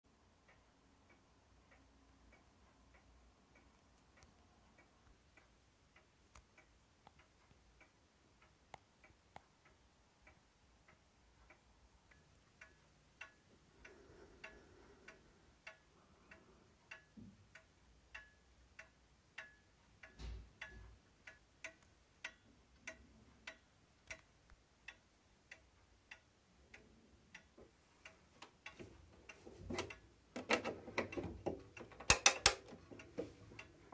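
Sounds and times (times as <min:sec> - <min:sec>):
clock ticking: 0:00.1 - 0:33.9.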